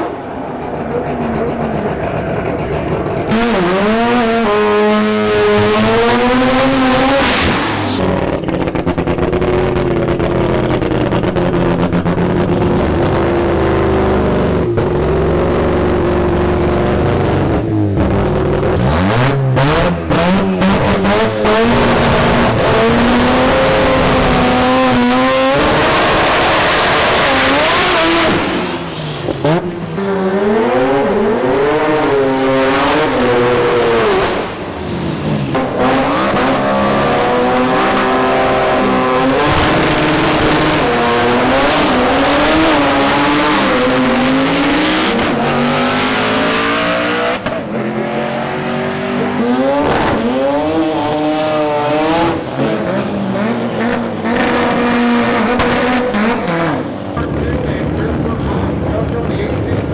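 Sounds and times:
race car engines revving: 0.0 - 59.9
tire squeal: 7.0 - 8.7, 27.3 - 30.2.

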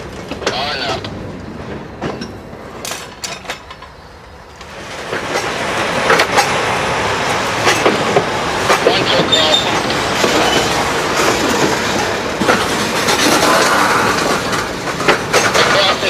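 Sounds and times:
train wheels grinding on rails: 0.0 - 16.0
wheel squeals: 9.2 - 10.8.

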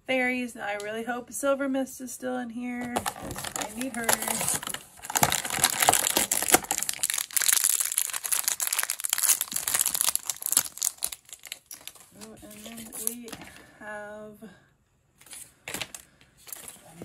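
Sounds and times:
cardboard door tearing open: 3.0 - 12.0
foil bag crinkling and tearing: 3.0 - 13.4.

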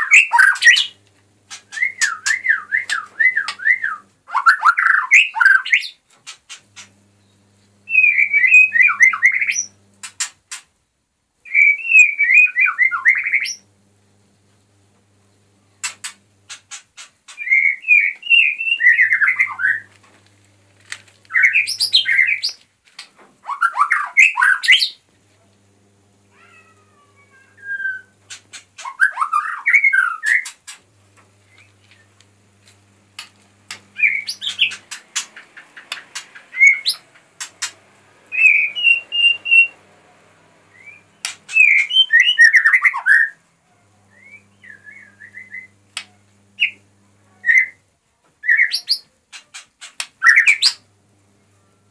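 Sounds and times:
bird singing whistled phrases: 1.7 - 6.0, 7.9 - 9.7, 11.5 - 13.6, 17.4 - 19.9, 27.5 - 28.2, 34.0 - 34.8, 36.5 - 37.0, 38.3 - 39.8, 40.7 - 43.4, 44.1 - 45.7, 47.4 - 47.8
bird clicking notes: 33.2 - 37.8.

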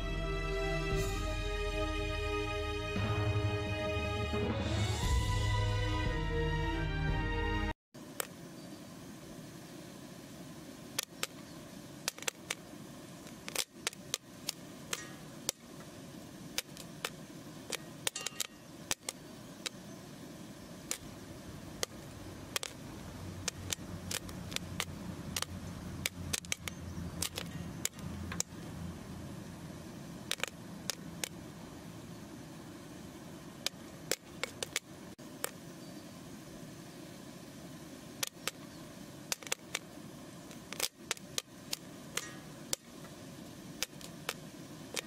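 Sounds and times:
low steady hum: 0.0 - 6.8, 8.0 - 45.0
popcorn popping in metal pan: 12.0 - 12.6, 13.2 - 15.7, 16.5 - 19.9, 20.8 - 28.6, 30.2 - 31.4, 38.2 - 39.8, 40.5 - 43.0, 43.8 - 45.0.

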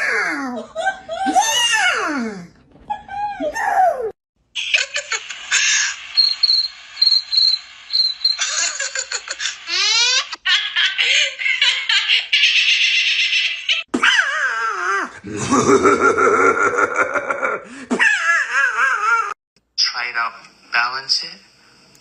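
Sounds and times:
hysterical laughter: 0.1 - 2.1, 4.6 - 6.0, 8.4 - 19.4
high-pitched chirps: 5.6 - 10.2.

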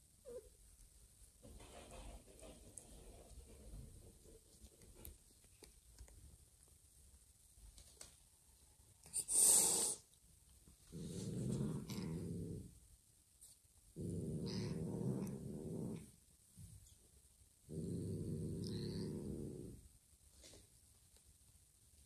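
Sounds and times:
cat hissing: 9.0 - 10.1
cat growling: 10.9 - 12.8, 14.0 - 16.1, 17.7 - 19.8.

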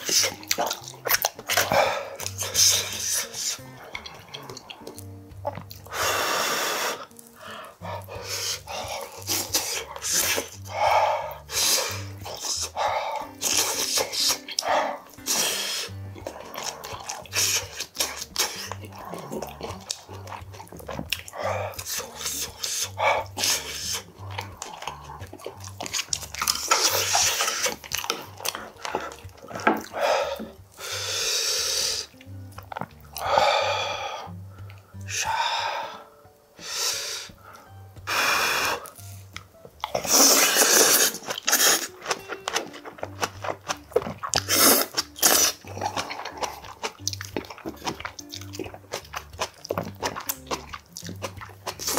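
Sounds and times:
man slurping food: 0.0 - 5.0, 5.7 - 20.3, 21.0 - 32.1, 38.1 - 39.1, 39.9 - 42.0, 44.2 - 47.1
background music with bass line: 0.0 - 51.9
chewing: 0.0 - 51.9.

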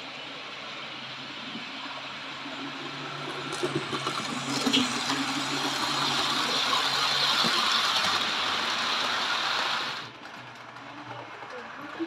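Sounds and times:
model train wheels rattling on rails: 2.6 - 12.0.

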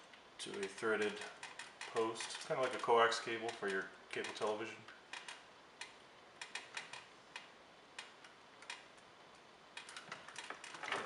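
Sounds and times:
small clicks and taps of connectors: 0.1 - 9.0.

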